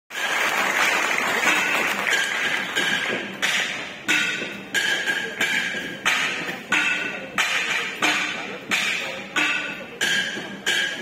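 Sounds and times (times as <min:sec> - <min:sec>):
applause: 0:00.1 - 0:03.1
bronze gongs struck: 0:01.4 - 0:11.0.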